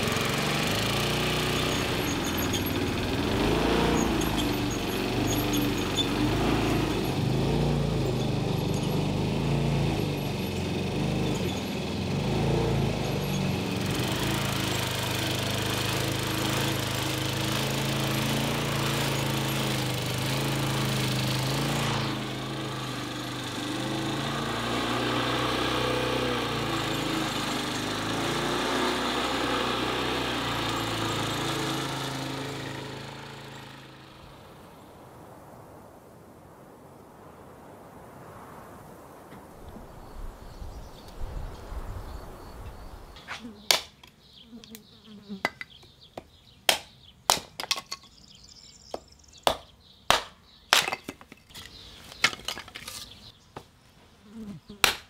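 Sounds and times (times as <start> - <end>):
lawn mower running: 0.0 - 34.6.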